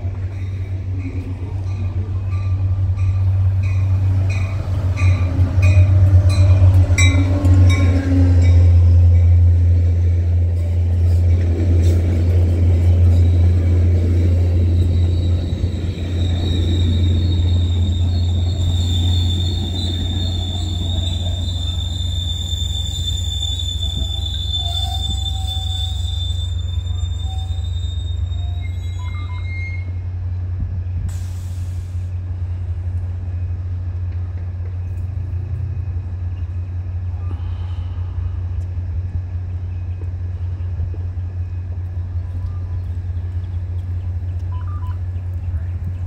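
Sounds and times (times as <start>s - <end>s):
train rolling with low rumble: 0.0s - 46.0s
train wheels squealing: 11.9s - 30.0s.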